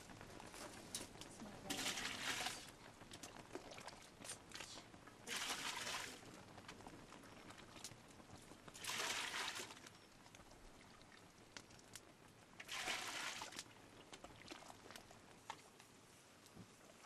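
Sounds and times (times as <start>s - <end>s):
liquid poured into a pot: 1.7s - 7.8s, 8.7s - 12.0s, 12.6s - 15.5s.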